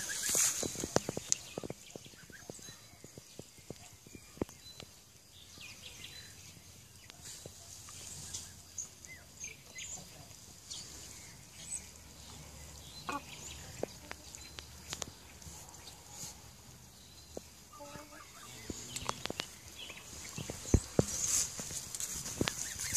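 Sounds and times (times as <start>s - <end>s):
birds chirping: 0.0s - 22.9s.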